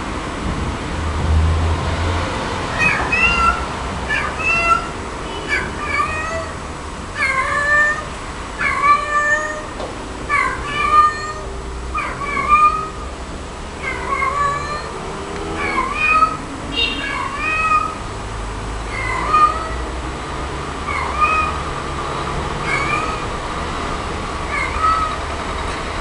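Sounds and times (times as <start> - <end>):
cat meowing: 2.7 - 6.6, 7.2 - 13.0, 13.8 - 18.0, 18.8 - 19.9, 20.8 - 21.7, 22.6 - 23.4, 24.5 - 25.3.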